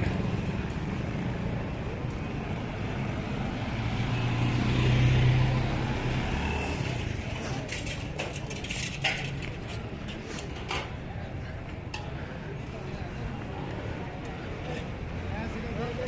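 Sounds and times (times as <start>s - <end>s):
vehicle engine passing: 2.4s - 7.7s.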